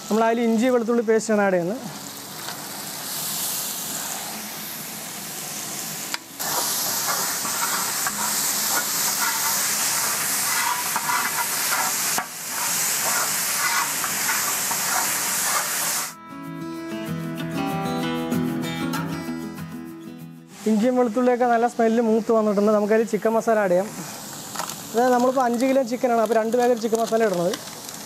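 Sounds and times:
paste sizzling in hot oil: 0.0 - 16.2, 20.5 - 28.0
metal ladle scraping pan: 6.4 - 16.1.

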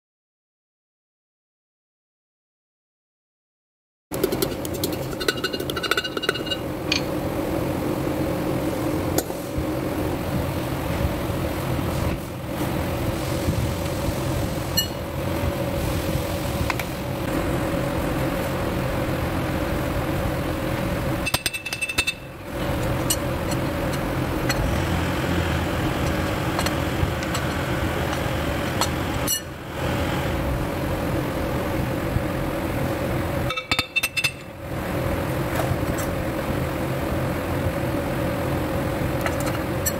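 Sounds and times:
mechanical drone: 16.5 - 33.6
hammer tapping metal: 21.2 - 22.3, 33.5 - 34.5.

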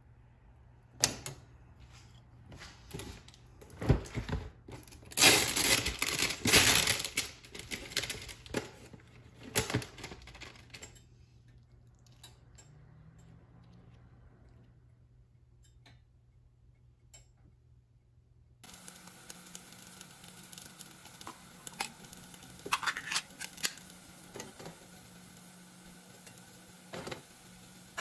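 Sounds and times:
spatula scraping frying pan: 21.1 - 24.5.

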